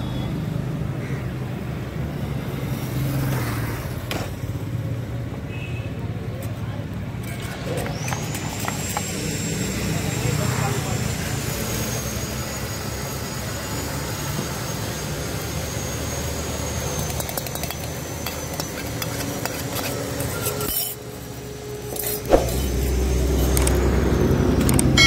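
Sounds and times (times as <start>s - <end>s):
spoon clinking against steel tumbler: 17.0s - 21.0s.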